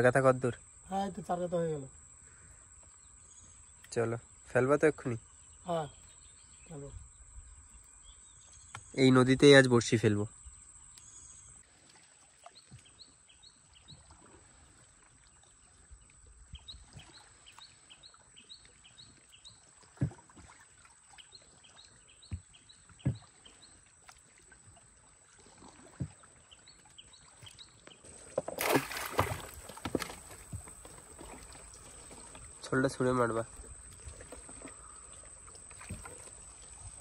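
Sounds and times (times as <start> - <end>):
object splashing into river: 28.3 - 31.8.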